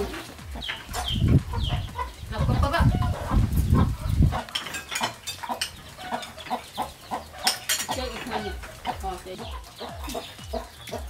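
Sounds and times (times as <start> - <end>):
chickens clucking: 0.0 - 11.0
spoons clinking on bowls: 4.5 - 6.6, 7.4 - 8.6.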